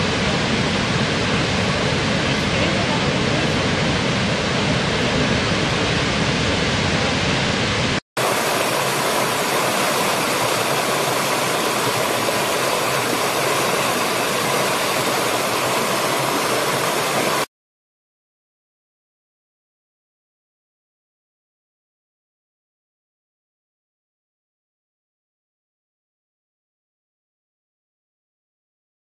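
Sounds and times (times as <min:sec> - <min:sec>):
waterfall thundering: 0:00.0 - 0:17.5
rocky stream rushing and splashing: 0:08.2 - 0:17.5.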